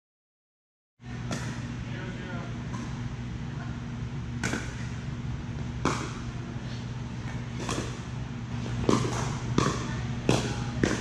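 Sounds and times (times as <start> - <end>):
paddle hitting plastic ball: 8.8 - 11.0.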